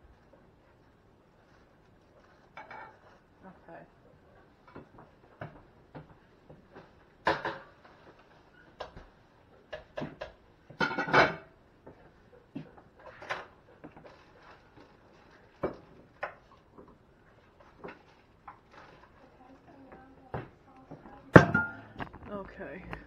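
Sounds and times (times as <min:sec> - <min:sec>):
dishes and utensils clinking: 0:09.9 - 0:11.5, 0:21.3 - 0:22.0.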